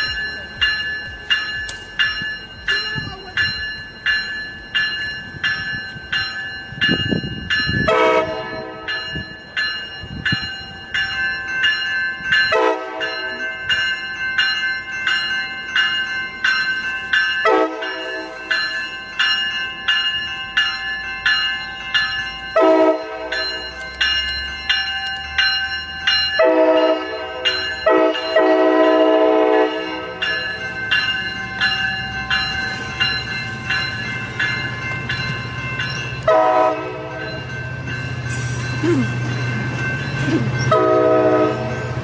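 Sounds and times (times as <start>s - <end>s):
crossing warning bell ringing: 0.0s - 42.0s
passing train rumble: 0.0s - 42.0s.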